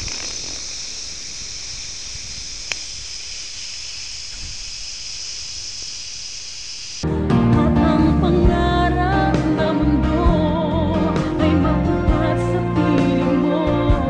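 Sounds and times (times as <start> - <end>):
faint low crackles: 0.0 - 7.0
high-pitched film hiss: 0.0 - 7.0.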